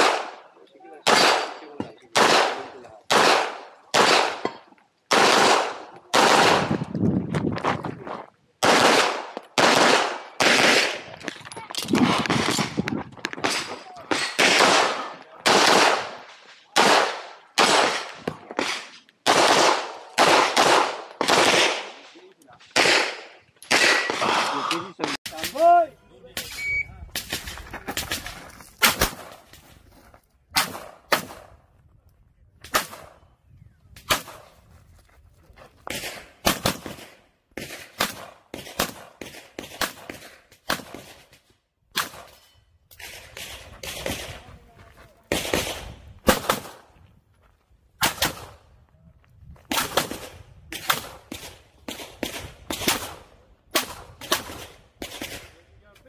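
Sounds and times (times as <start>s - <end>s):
pistol shots: 0.0s - 6.8s, 8.6s - 11.1s, 11.8s - 16.2s, 16.8s - 22.0s, 22.7s - 24.6s, 45.3s - 46.8s.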